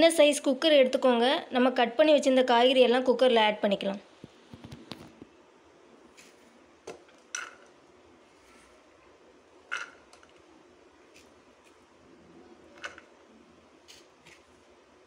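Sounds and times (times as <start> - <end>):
vegetables clattering on metal pot: 7.2 - 7.7, 9.7 - 10.2.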